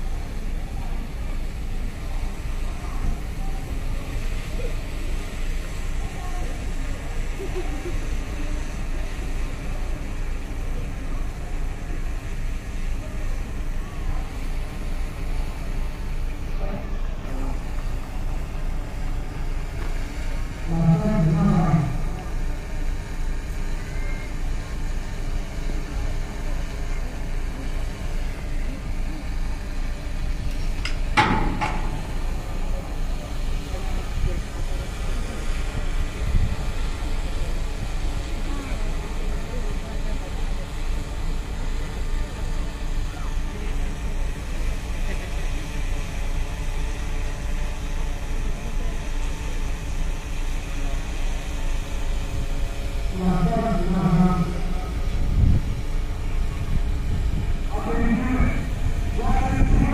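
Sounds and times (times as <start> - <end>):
steady low rumble: 0.0 - 23.8, 24.5 - 41.2, 51.8 - 59.9
crowd ambience: 0.0 - 59.9
faint outdoor background noise: 0.0 - 59.9
deep pitched tone: 20.6 - 22.6, 53.1 - 55.7
wind buffeting microphone: 54.9 - 57.7, 58.4 - 59.9.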